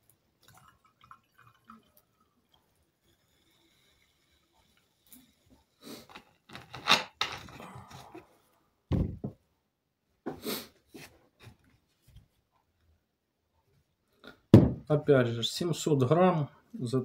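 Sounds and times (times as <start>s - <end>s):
plastic bottle crinkling: 6.0s - 8.2s
bottle thud on table: 14.5s - 14.8s.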